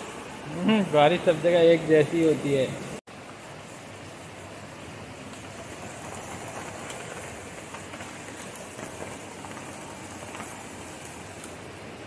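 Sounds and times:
steady rain: 0:00.0 - 0:12.0
raindrop ticks: 0:05.2 - 0:11.6.

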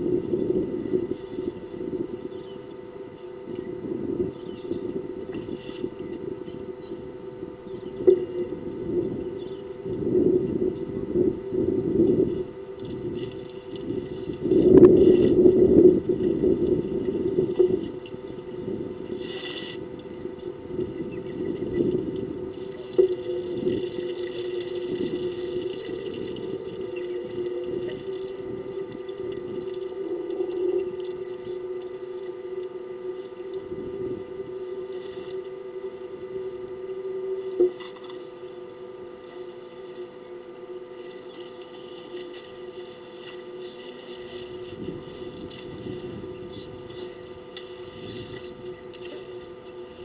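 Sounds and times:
steady hum with rushing noise: 0:00.0 - 0:50.0
elephants drawing water: 0:19.1 - 0:20.0.

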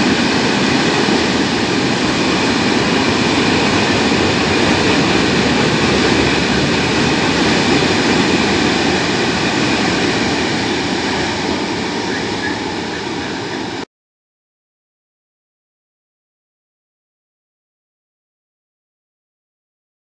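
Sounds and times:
train wheels on rails: 0:00.0 - 0:13.8.

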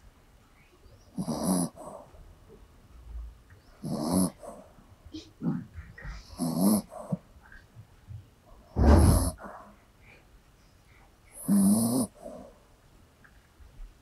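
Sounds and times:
dog snoring: 0:01.1 - 0:02.2, 0:03.8 - 0:04.7, 0:05.5 - 0:07.3, 0:08.8 - 0:09.7, 0:11.3 - 0:12.6.

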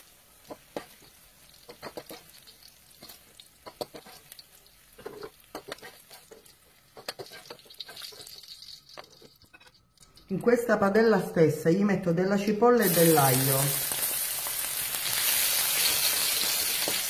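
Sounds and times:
vegetables sizzling in oil: 0:00.0 - 0:09.5, 0:12.8 - 0:17.0
skimmer scraping against pan: 0:03.0 - 0:04.4, 0:05.0 - 0:09.8.

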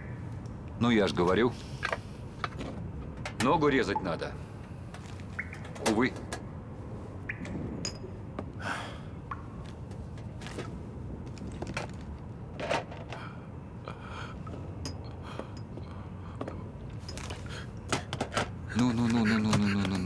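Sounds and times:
items clicking and rustling: 0:09.9 - 0:13.3, 0:16.4 - 0:20.0.

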